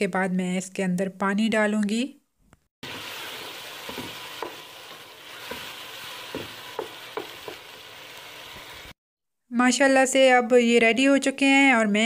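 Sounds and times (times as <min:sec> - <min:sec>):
vegetables sizzling in oil: 0:02.8 - 0:09.0.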